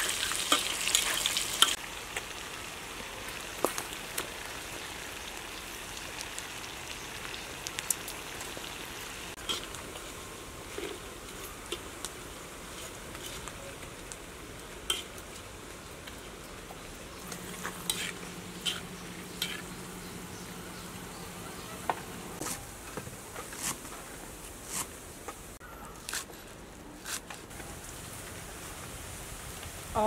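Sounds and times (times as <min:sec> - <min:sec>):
oil sizzling in wok: 0:00.0 - 0:25.6, 0:27.5 - 0:30.0
tongs scraping wok: 0:09.4 - 0:12.0, 0:14.8 - 0:15.5, 0:17.2 - 0:21.8.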